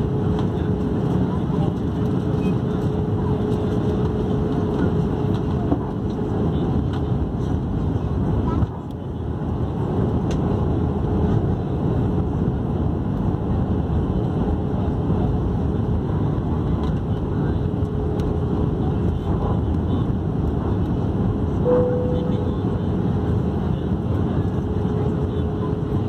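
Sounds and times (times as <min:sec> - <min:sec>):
airflow and engine drone in cabin: 0:00.0 - 0:26.0
short bright tone: 0:21.7 - 0:22.4.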